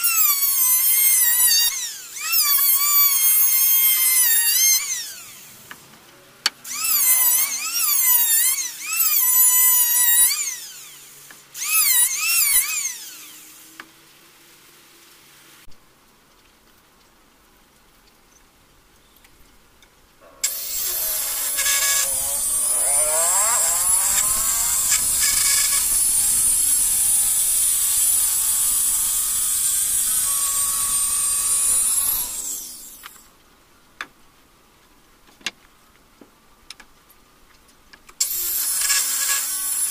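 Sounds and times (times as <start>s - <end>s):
electric hand planer whining: 0.0s - 5.5s, 6.7s - 13.6s, 20.4s - 33.2s
circular saw cutting wood: 0.0s - 5.6s, 6.6s - 13.9s, 20.4s - 33.2s, 38.2s - 39.9s.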